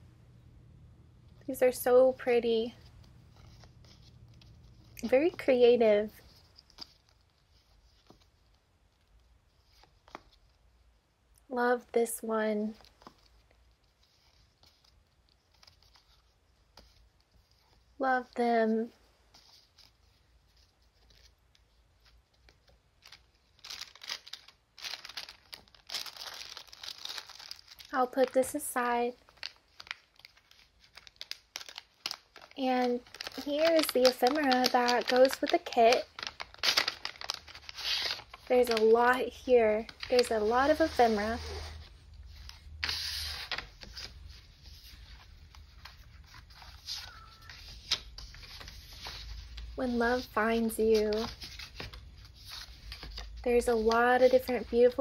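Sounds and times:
plastic sleeve and photos rustling: 1.4s - 11.0s, 12.2s - 55.0s.

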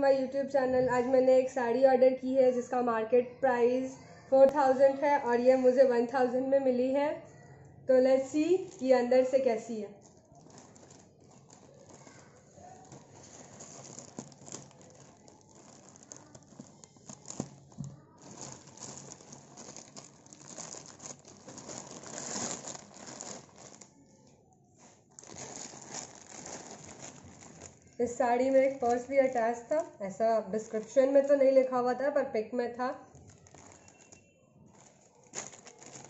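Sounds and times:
plastic packaging crinkling: 8.2s - 30.0s, 30.6s - 31.8s, 33.0s - 36.0s.

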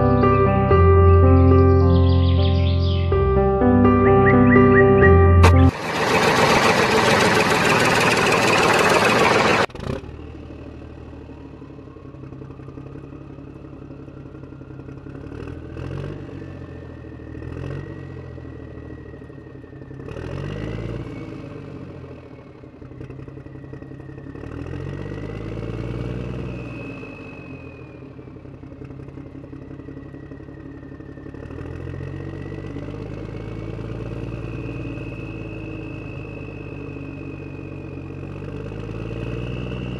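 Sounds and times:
toy tractor motor whine: 5.4s - 9.7s.

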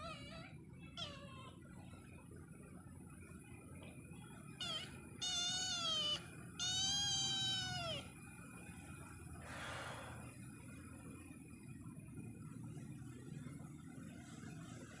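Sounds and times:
kitten meowing: 0.0s - 1.6s, 4.5s - 8.2s.

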